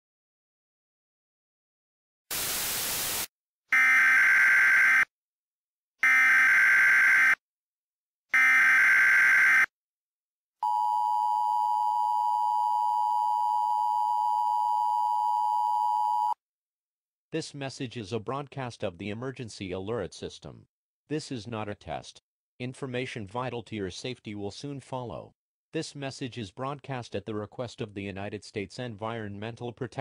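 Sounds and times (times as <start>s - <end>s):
static hiss: 2.3s - 3.3s.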